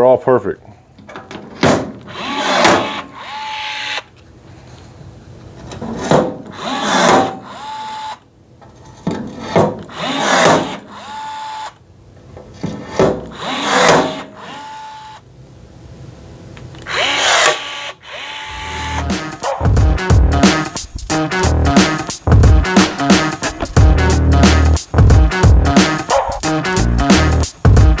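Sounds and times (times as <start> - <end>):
rivet gun motor whirring: 16.8 - 19.0.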